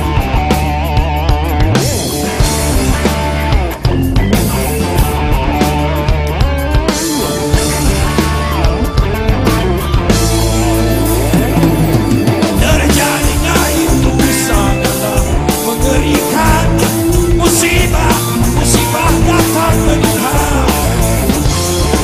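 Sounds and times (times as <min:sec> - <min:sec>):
guitar and bass notes: 0:00.0 - 0:22.0
drum kit hits: 0:09.3 - 0:22.0
man singing: 0:12.4 - 0:21.3.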